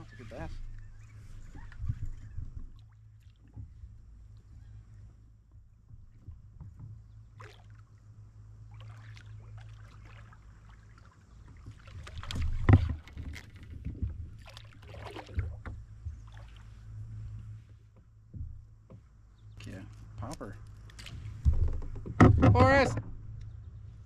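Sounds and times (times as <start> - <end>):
steady low hum: 0.0 - 24.0
lure splashing on water: 7.4 - 7.9, 8.7 - 13.7, 14.4 - 15.6, 16.2 - 16.7.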